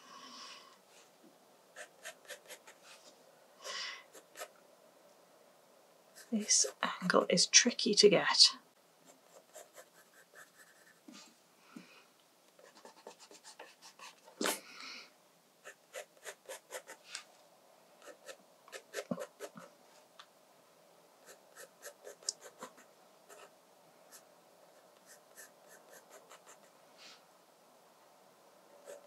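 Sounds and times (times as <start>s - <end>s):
pencil scratching on paper: 1.8s - 2.9s, 4.1s - 4.5s, 6.1s - 6.8s, 9.1s - 11.2s, 12.6s - 14.6s, 15.6s - 17.1s, 18.0s - 19.7s, 21.2s - 23.5s, 24.1s - 26.7s.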